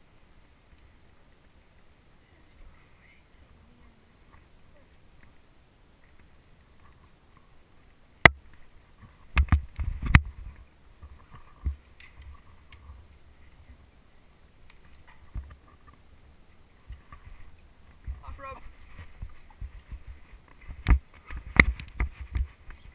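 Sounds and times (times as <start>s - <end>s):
rope and metal gear clicking: 11.2s - 12.9s.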